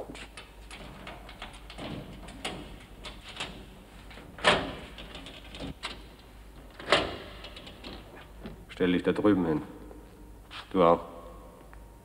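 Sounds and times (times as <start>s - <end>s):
footsteps: 9.9s - 10.8s.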